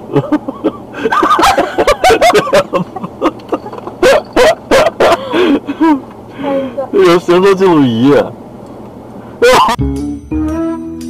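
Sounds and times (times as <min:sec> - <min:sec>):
people laughing hard: 0:00.1 - 0:06.0.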